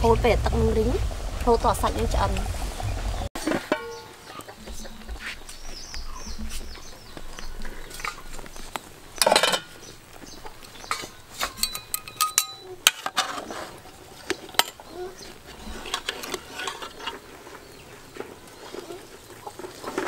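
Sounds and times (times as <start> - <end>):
metal utensils clinking on pot: 3.4 - 4.2, 9.2 - 9.8, 10.8 - 13.6, 14.4 - 14.9, 15.7 - 17.3
utensil scraping pot: 10.8 - 20.0.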